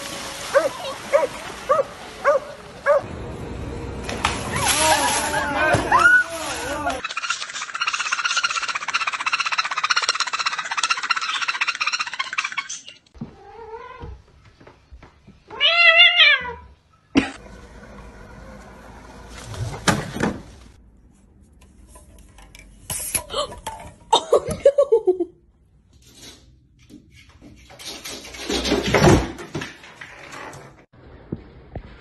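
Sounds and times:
parrot buzzing chatter: 7.0 - 13.0
cat meowing: 15.5 - 16.7.

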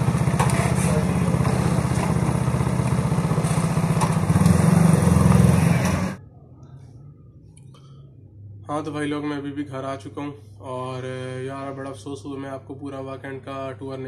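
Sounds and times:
motorcycle engine idling: 0.0 - 6.2.

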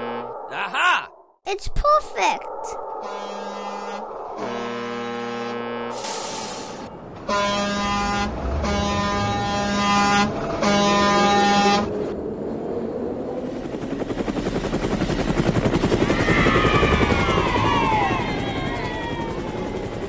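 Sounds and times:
toy train horn tooting: 7.3 - 11.9.

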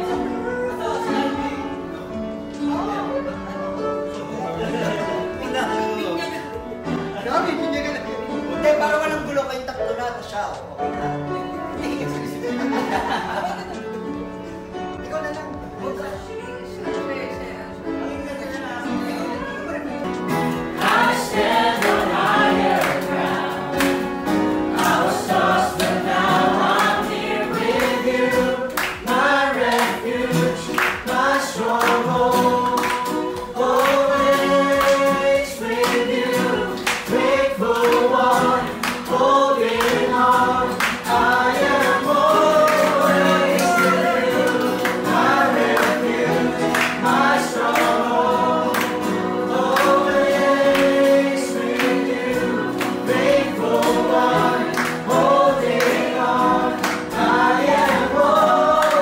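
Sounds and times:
group singing worship song: 0.0 - 7.3, 18.7 - 59.0.

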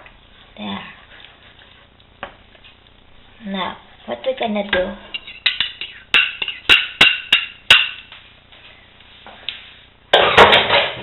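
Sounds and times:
kitchenware clattering: 5.1 - 8.1, 10.1 - 11.0
metal spoon knocking bowl rim: 5.2 - 8.1.

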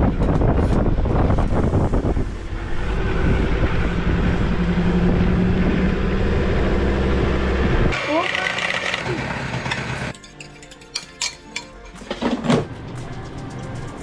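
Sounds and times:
wind noise on microphone: 0.0 - 8.0
vehicle engine drone: 0.0 - 10.1.

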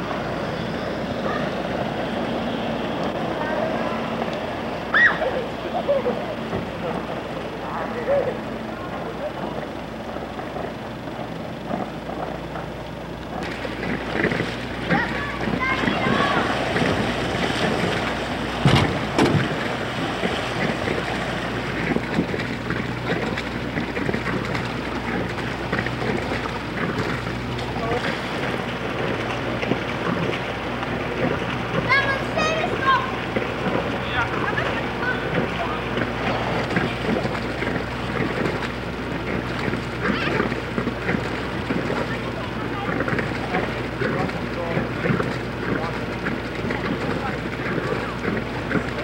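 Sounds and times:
steady low hum: 0.0 - 49.0
swimmers splashing: 0.0 - 49.0
water noise: 0.0 - 49.0
wind buffeting microphone: 0.0 - 49.0
sharp knocks: 18.6 - 19.6.

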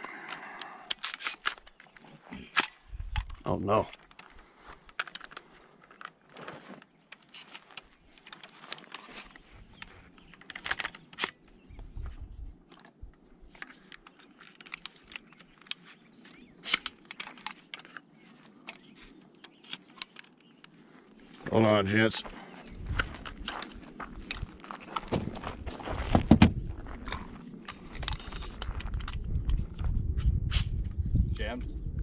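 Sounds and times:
objects clicking and rattling: 0.0 - 11.4.

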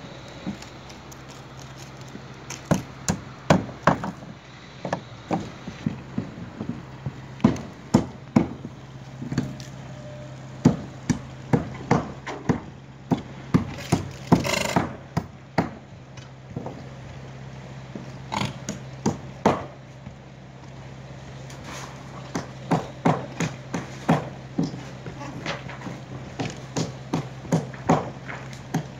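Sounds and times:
steady low hum: 0.0 - 28.9
wood knocks and bangs: 2.5 - 9.7, 10.6 - 16.9, 22.2 - 28.9
boards clattering onto pile: 23.8 - 26.6.

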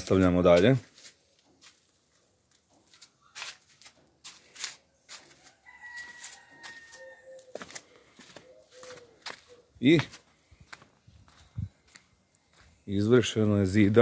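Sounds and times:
rooster crowing faintly: 5.1 - 9.7.

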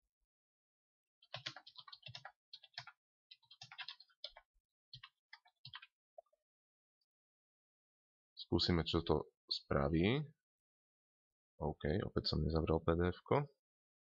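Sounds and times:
keyboard typing: 1.2 - 6.0.

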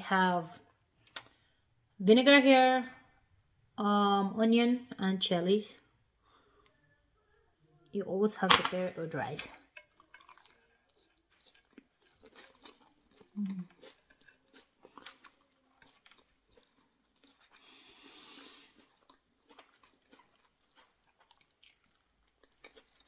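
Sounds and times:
wet chewing clicks: 9.6 - 23.0.

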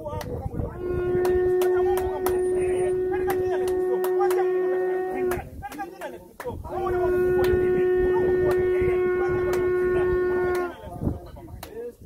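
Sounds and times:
ram's horn blast: 0.7 - 5.5, 6.7 - 10.8.

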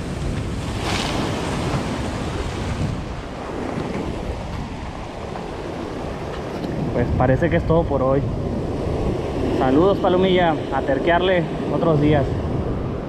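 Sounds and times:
waves splashing on rocks: 0.0 - 5.6
wind on microphone: 0.0 - 13.0.

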